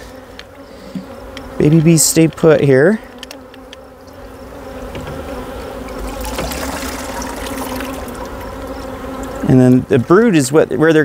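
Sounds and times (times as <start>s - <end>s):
bees buzzing: 0.0s - 11.0s
water pouring into bucket: 6.0s - 8.2s.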